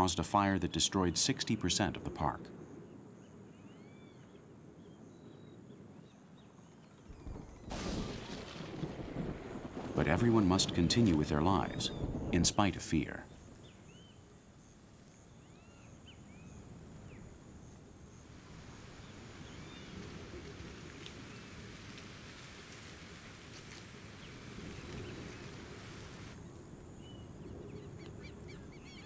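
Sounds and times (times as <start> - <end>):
insect drone: 0.1 - 29.0
rough hiss: 7.1 - 10.1.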